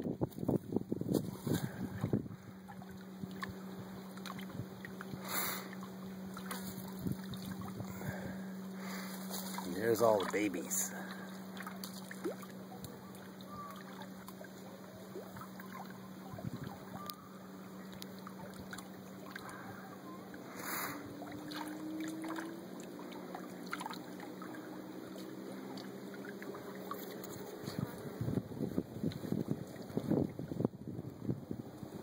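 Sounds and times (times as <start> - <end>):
wind buffeting microphone: 0.0 - 2.6, 16.2 - 17.0, 27.6 - 32.0
light water noise: 0.0 - 32.0
distant motorboat engine droning: 1.6 - 29.0.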